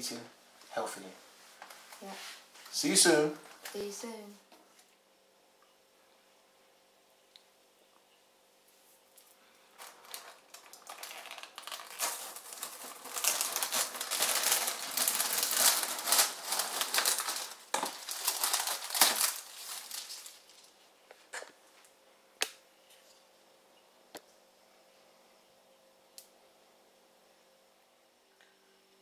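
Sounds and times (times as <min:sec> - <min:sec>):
plastic film crinkling: 0:03.4 - 0:04.2, 0:09.1 - 0:21.4.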